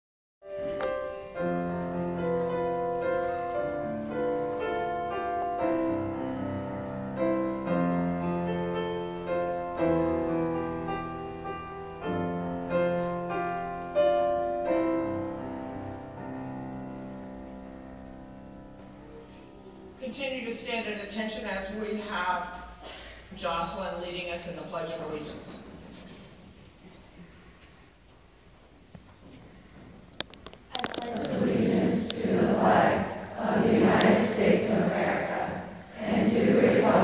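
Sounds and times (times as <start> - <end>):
grand piano playing chords: 0.4 - 22.7, 31.2 - 37.0.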